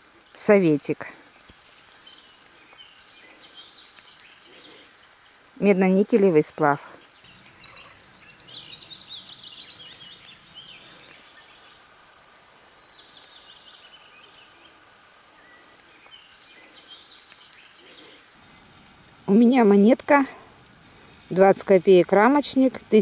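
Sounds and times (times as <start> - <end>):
songbirds singing: 0.2 - 20.2
high buzzing bird trill: 7.2 - 11.0
bird chirps: 7.2 - 14.7.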